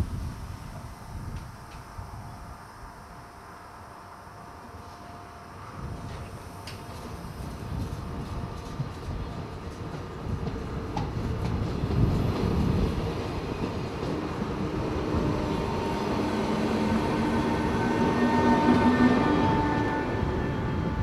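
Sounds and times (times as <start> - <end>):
train whine: 0.0 - 21.0
train wheels rumbling on rails: 4.8 - 21.0.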